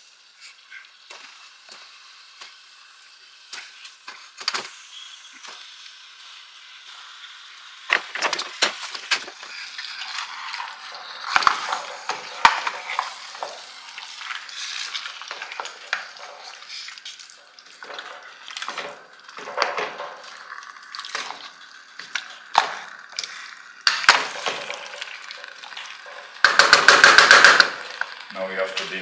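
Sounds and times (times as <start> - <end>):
food sizzling in a pot: 0.0 - 29.0
spoon scraping a pot: 9.4 - 21.4
sharp knocks: 26.4 - 27.8.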